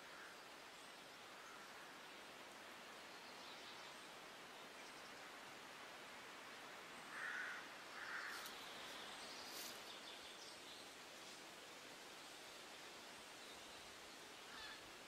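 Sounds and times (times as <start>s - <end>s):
steady outdoor hiss: 0.0s - 15.0s
short bird calls: 14.5s - 14.9s.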